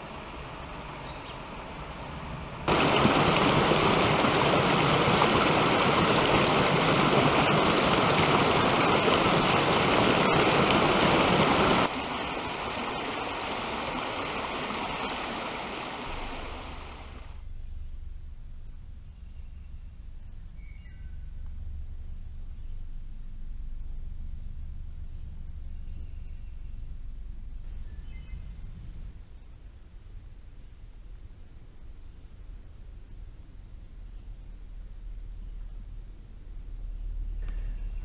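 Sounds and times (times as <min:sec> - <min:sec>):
creek water rushing over rocks: 0:02.7 - 0:17.4
shallow water flowing over rock: 0:02.7 - 0:17.4.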